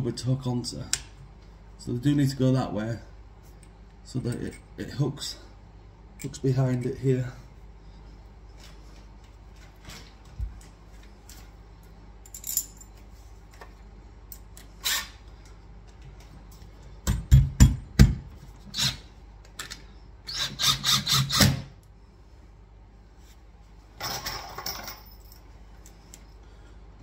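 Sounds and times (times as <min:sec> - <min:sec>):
impact driver bursts: 0:20.3 - 0:21.7.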